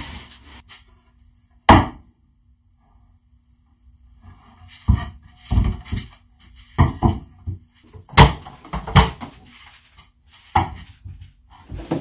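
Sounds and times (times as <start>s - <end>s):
wood and tools knocking on workbench: 4.8s - 9.4s.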